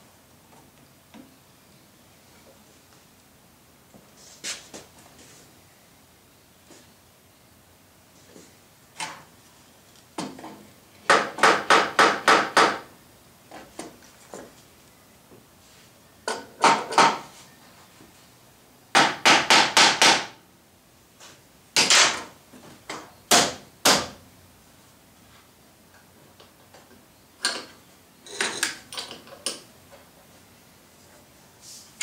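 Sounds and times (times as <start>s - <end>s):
hammer tapping on wood boards: 11.1s - 12.9s, 19.0s - 20.4s.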